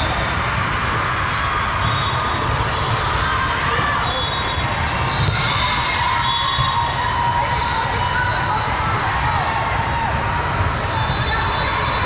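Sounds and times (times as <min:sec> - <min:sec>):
sneaker squeaks on court floor: 0:00.1 - 0:03.0, 0:04.1 - 0:05.6.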